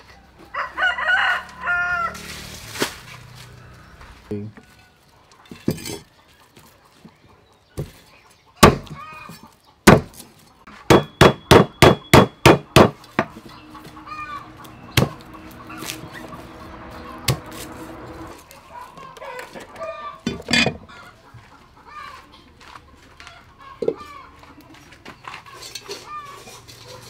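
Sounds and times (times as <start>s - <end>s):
chickens clucking: 5.0s - 10.9s, 12.7s - 27.0s
cleaver chopping on wooden block: 8.6s - 9.0s, 9.8s - 10.2s, 10.9s - 13.3s.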